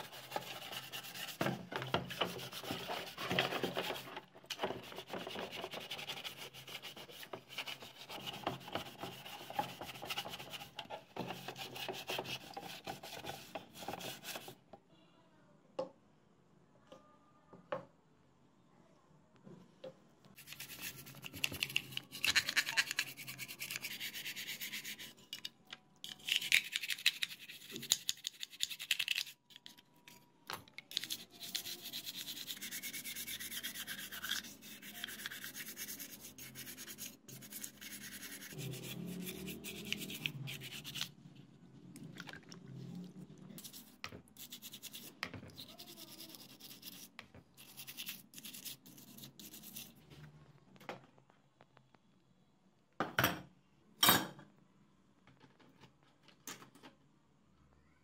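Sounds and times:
toothbrush scrubbing metal parts: 0:00.0 - 0:14.6, 0:20.4 - 0:30.2, 0:30.8 - 0:41.2, 0:43.6 - 0:50.0.

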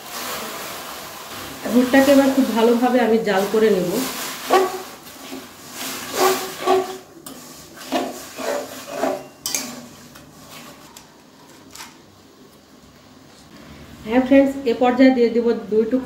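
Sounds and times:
faint hiss from heating pan: 0:00.0 - 0:10.6
metal spatula scraping a pan: 0:03.4 - 0:11.0.

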